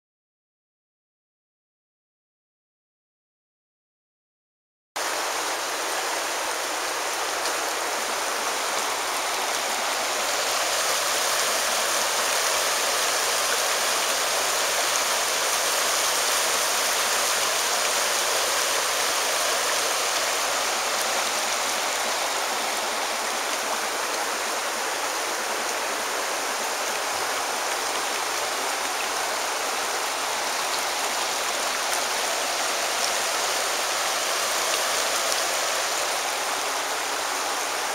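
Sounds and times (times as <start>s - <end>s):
water rushing over rocks: 5.0s - 37.9s.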